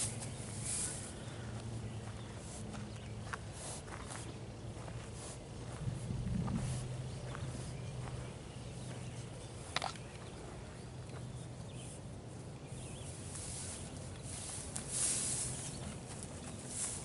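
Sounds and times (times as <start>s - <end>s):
horses pulling at hay: 0.0s - 1.5s, 12.7s - 17.0s
horses shuffling: 0.0s - 17.0s
low steady hum: 0.0s - 17.0s.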